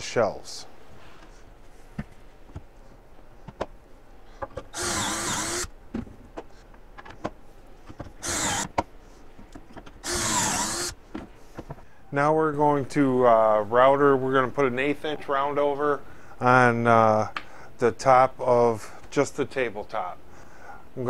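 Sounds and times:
cordless drill boring into wood: 4.7 - 5.7, 8.2 - 8.7, 10.0 - 11.0.

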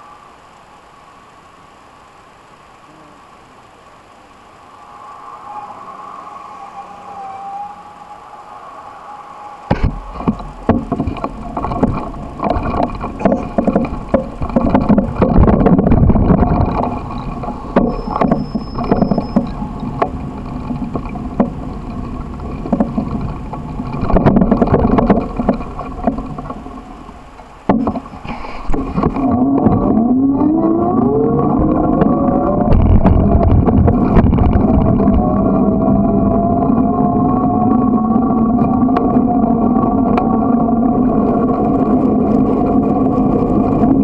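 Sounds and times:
wind rumble: 3.4 - 44.0
bicycle rattling knocks: 9.7 - 26.8.

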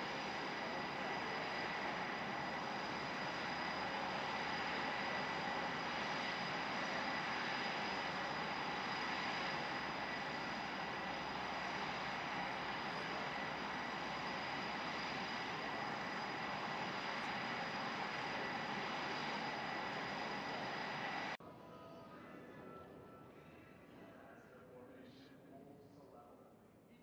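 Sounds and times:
high-pitched turbine whine: 0.0 - 21.4
jet engines rushing: 0.0 - 21.4.

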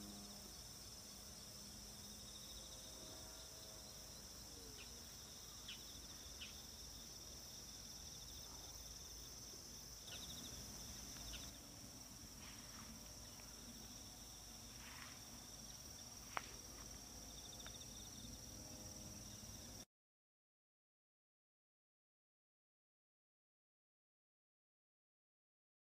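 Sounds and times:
crickets and insects chirping: 0.0 - 19.8.

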